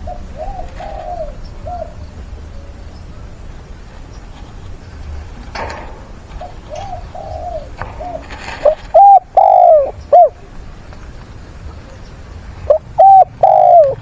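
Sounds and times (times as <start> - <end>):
dove cooing: 0.0 - 2.8, 6.4 - 10.6, 12.6 - 14.0.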